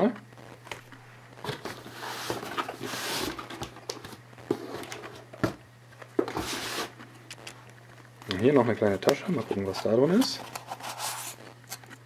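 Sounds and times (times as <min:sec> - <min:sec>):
steady low hum: 0:00.0 - 0:12.0
packaging rustling: 0:09.2 - 0:12.0.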